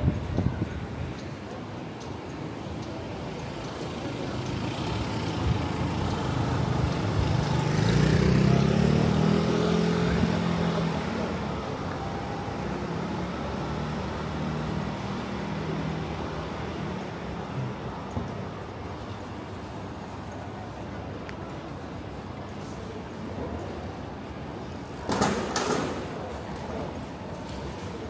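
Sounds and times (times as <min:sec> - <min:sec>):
steady traffic noise: 0:00.0 - 0:28.0
vehicle engine passing: 0:06.7 - 0:11.6.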